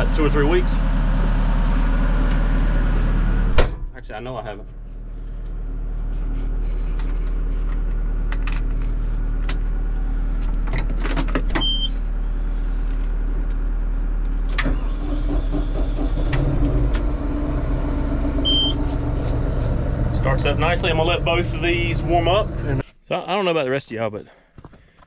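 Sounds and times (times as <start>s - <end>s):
tractor diesel engine starting and idling: 0.0s - 22.8s.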